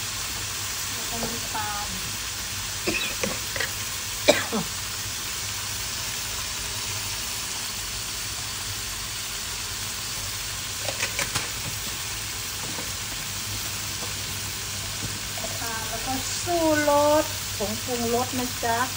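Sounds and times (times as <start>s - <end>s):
meat sizzling in a wok: 0.0s - 18.9s.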